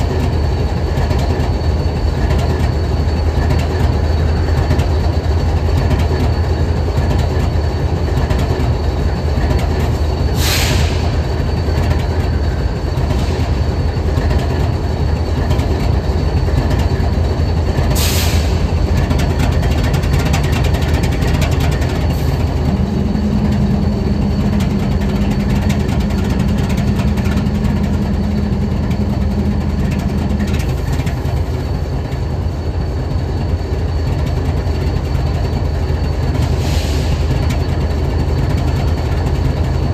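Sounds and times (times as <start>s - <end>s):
locomotive idling: 0.0s - 39.9s
short hisses: 10.4s - 11.1s
steady hum: 14.9s - 34.0s.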